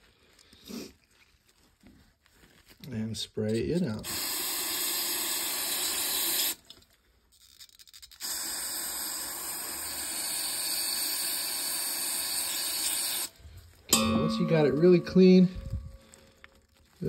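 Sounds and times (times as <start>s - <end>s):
aerosol spray hissing: 4.0s - 6.6s, 8.2s - 13.3s.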